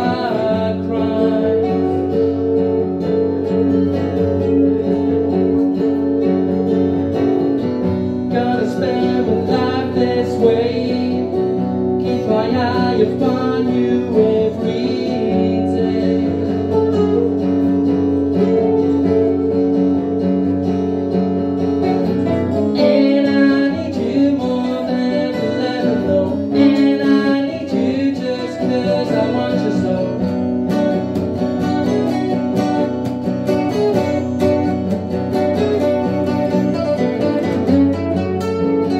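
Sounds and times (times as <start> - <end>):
acoustic guitars strumming: 0.0 - 38.9
harmonica melody: 16.6 - 23.2.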